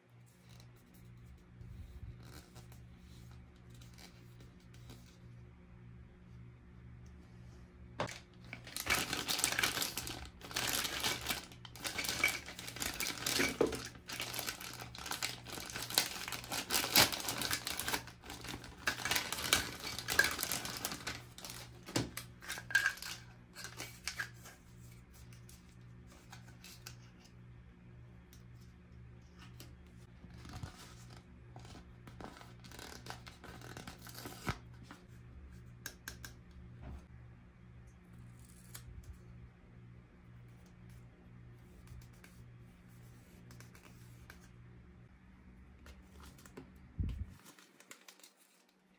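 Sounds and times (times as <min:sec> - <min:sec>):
packaging crinkling and rustling: 0:08.0 - 0:24.3, 0:47.3 - 0:48.9.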